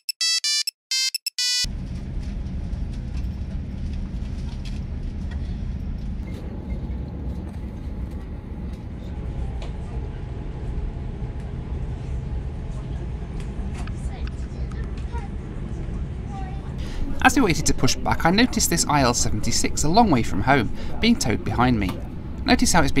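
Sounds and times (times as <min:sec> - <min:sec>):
short electronic beeps: 0:00.0 - 0:01.7
airliner cabin low rumble: 0:01.7 - 0:23.0.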